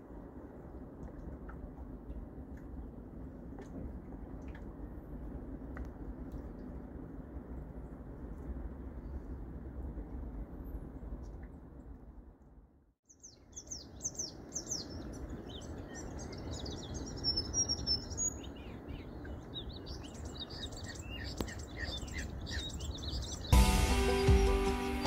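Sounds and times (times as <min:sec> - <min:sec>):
small birds chirping: 0:13.1 - 0:25.0
music: 0:23.5 - 0:25.0.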